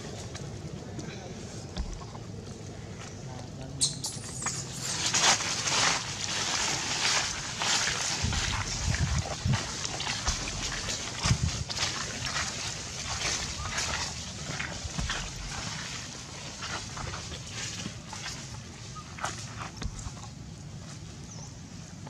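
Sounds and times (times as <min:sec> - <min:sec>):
dry leaves rustling and crackling: 0:04.2 - 0:21.9
wind rumble on microphone: 0:06.6 - 0:22.0.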